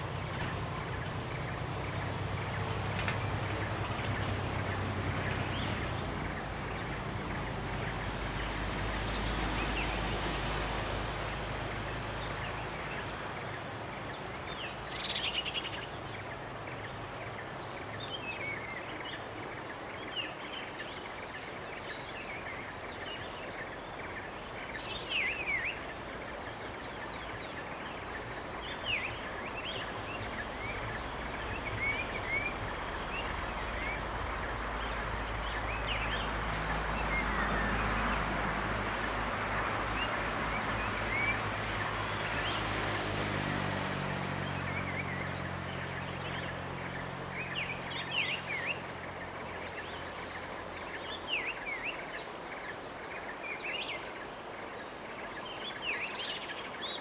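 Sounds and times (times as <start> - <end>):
insect drone: 0.0 - 57.0
distant engine: 26.6 - 52.3.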